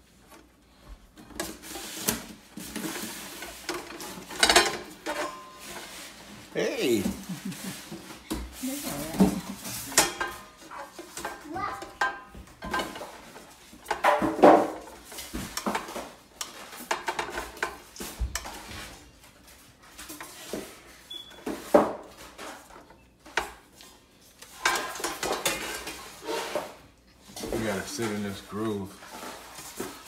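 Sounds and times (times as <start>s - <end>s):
metal pan clattering and scraping: 1.4s - 6.2s, 7.6s - 19.0s, 24.5s - 28.3s.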